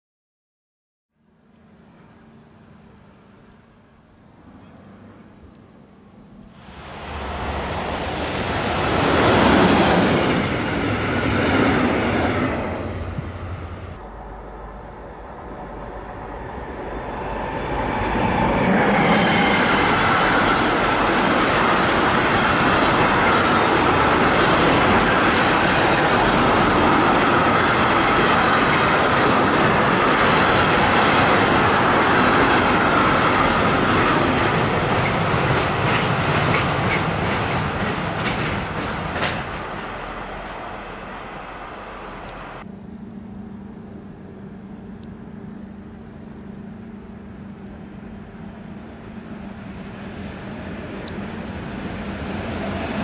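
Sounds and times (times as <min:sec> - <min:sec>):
freight train wheels rushing on rails: 0:06.6 - 0:42.7, 0:46.0 - 0:53.0
clickety-clack of wagon wheels: 0:33.3 - 0:39.6.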